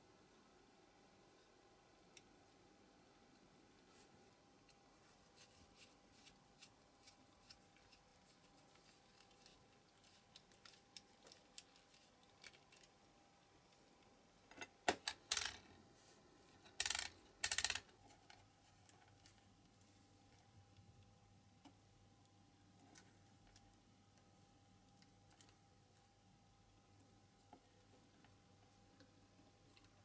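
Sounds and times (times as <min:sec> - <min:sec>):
small parts and tools clattering: 0:14.5 - 0:15.7, 0:16.6 - 0:18.3.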